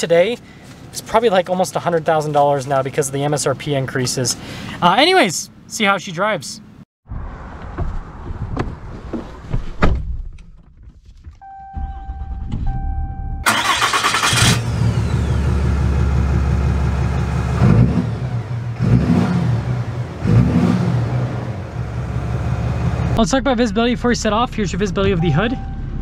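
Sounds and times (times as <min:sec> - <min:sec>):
two-beep dash chime: 0:11.4 - 0:13.4, 0:25.2 - 0:26.0
diesel engine starting and idling: 0:11.4 - 0:26.0.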